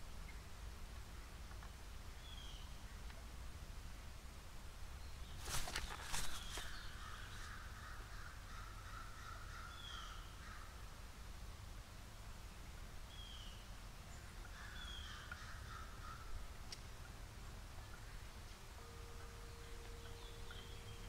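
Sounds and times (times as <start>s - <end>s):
bird calling in background: 5.0s - 10.9s, 13.1s - 21.0s
sharp knocks and rustles: 5.4s - 6.8s.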